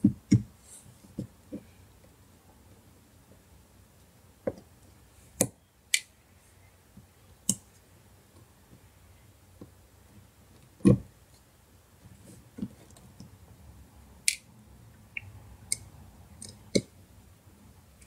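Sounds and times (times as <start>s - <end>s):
clicks and taps of small parts: 14.2s - 14.5s.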